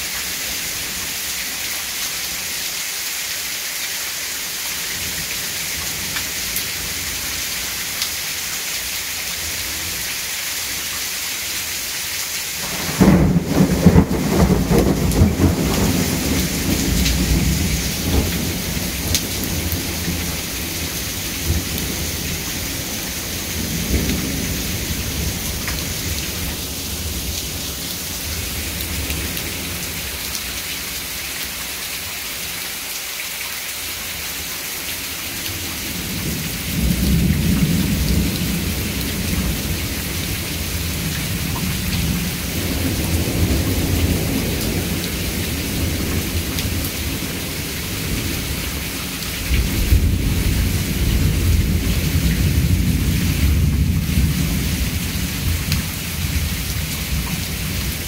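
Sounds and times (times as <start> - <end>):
heavy rain falling: 0.0 - 58.0
rolling thunder: 12.6 - 27.6, 49.5 - 58.0.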